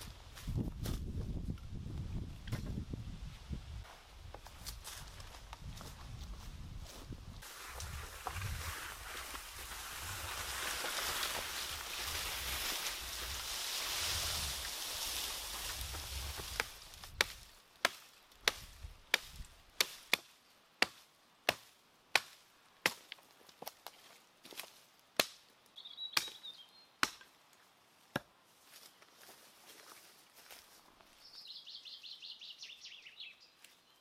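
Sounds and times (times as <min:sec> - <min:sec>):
axe chopping wood: 0:16.4 - 0:23.0, 0:27.0 - 0:27.3.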